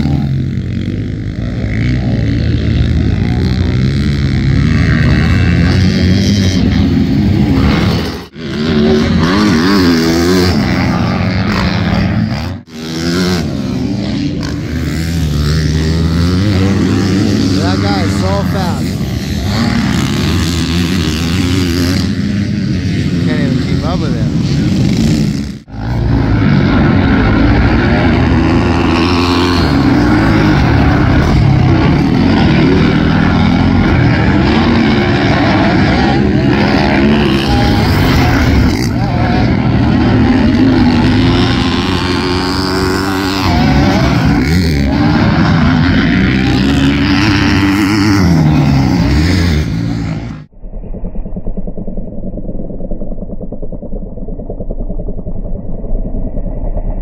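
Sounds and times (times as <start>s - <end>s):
dirt bike engine revving: 0.0s - 50.6s.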